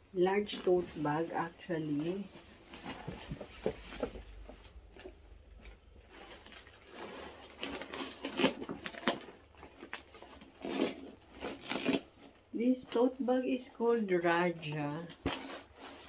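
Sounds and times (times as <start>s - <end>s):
cloth bag rustling: 0.4s - 12.4s.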